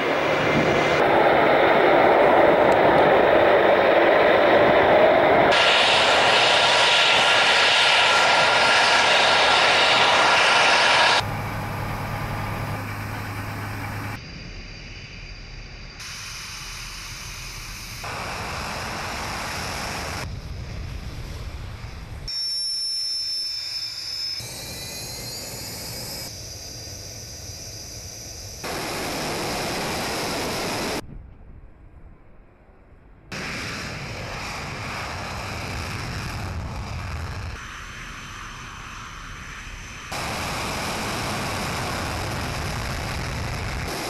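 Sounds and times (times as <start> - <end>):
high steady turbine whine: 0.0 - 31.0, 32.3 - 44.0
jet engines at takeoff power: 0.0 - 31.1, 32.6 - 44.0.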